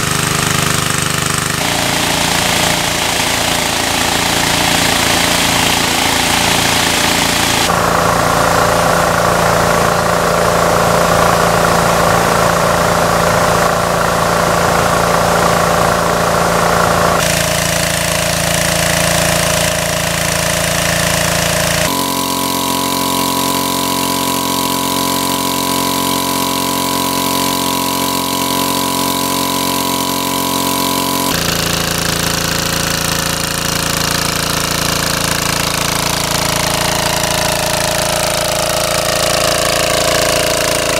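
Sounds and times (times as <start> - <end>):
water pump engine running: 0.0 - 40.9
water spraying hiss: 1.6 - 7.7.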